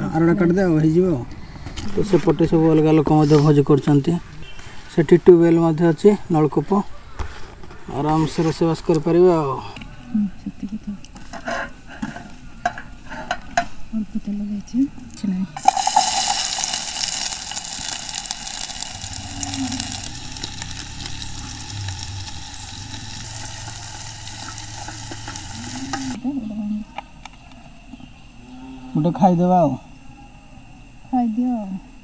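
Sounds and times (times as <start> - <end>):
onions sizzling in hot oil: 15.6 - 26.2.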